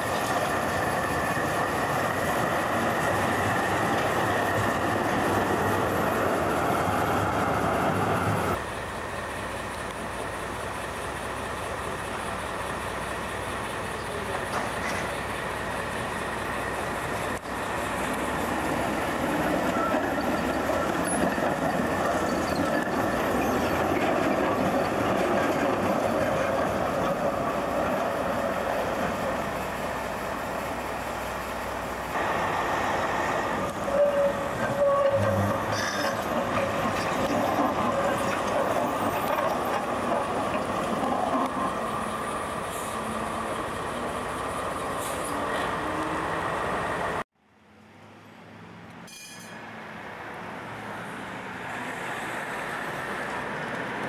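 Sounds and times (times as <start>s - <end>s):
tram wheels rumbling on rail: 0.0s - 47.2s, 49.4s - 54.0s
faint wheel squeals: 19.6s - 23.8s.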